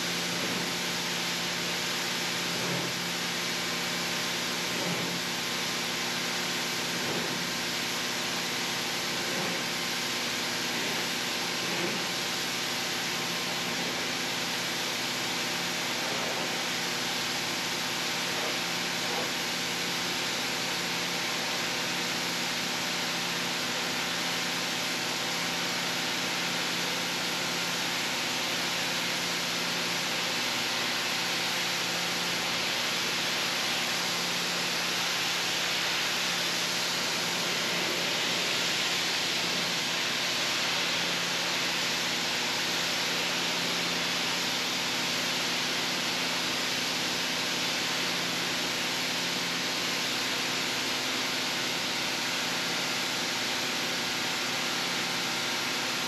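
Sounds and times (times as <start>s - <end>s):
rug-cleaning machinery running: 0.0s - 56.0s.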